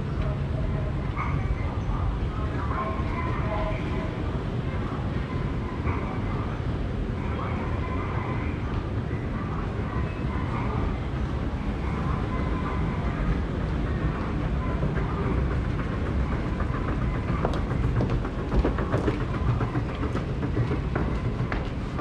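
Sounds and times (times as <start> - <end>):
train rumbling: 0.0 - 22.0
rail clicks: 7.6 - 22.0.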